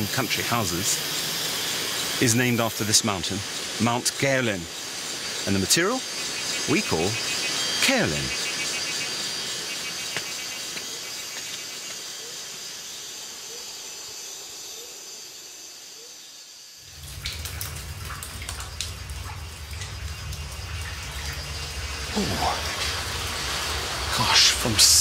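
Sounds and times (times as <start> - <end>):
forest insects hissing: 0.0 - 25.0
water dripping and trickling: 16.8 - 25.0
low steady hum: 16.9 - 25.0.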